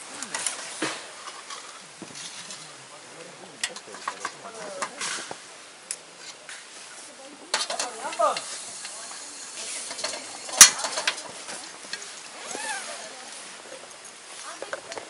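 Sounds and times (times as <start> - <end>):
low sizzle and hiss: 0.0 - 15.0.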